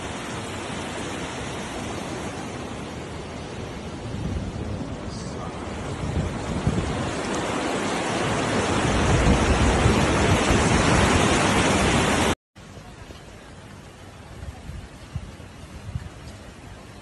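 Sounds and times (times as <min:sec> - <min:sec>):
floodwater rushing roar: 0:00.0 - 0:17.0.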